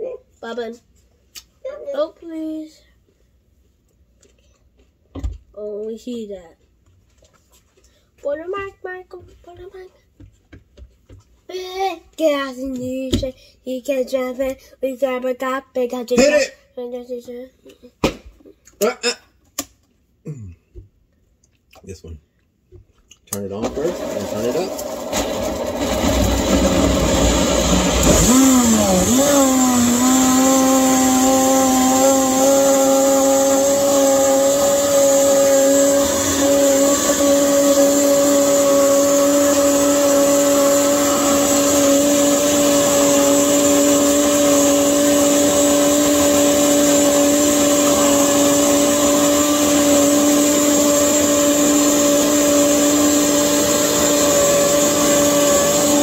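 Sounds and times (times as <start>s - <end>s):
blender motor running: 23.5s - 56.0s.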